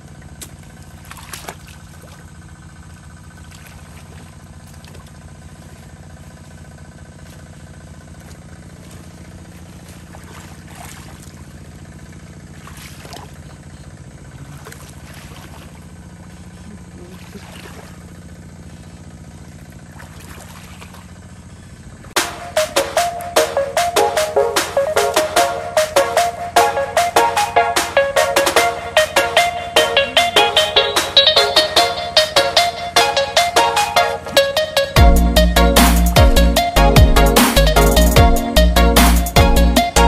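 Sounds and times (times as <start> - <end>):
wading splashes in water: 0.0 - 23.6, 34.0 - 34.9
small engine droning: 0.0 - 40.0.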